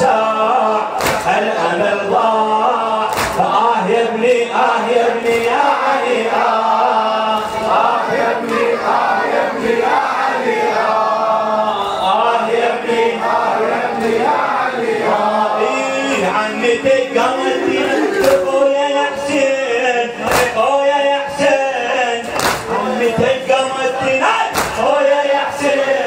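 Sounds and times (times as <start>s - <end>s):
man chanting through a microphone: 0.0s - 8.1s, 15.4s - 26.0s
group chanting along: 0.0s - 26.0s.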